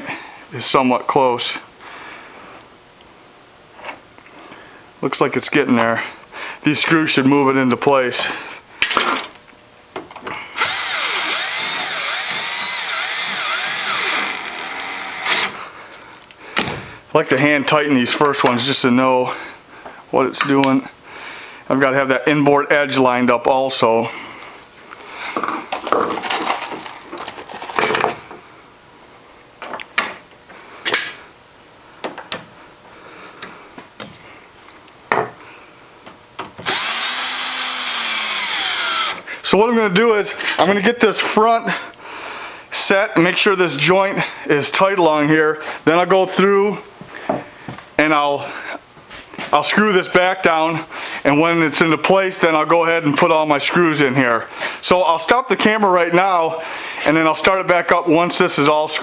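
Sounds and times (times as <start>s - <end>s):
cordless drill driving screw: 10.6s - 15.6s, 36.6s - 39.2s
drill clicks: 10.6s - 15.6s, 36.6s - 39.2s.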